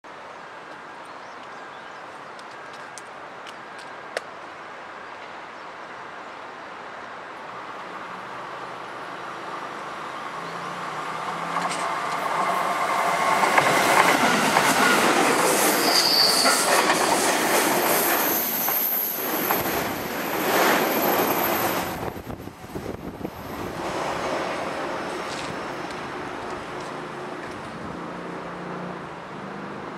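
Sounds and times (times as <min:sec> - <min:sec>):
train passing rumble: 0:07.5 - 0:29.9
high wheel squeal: 0:14.3 - 0:16.9.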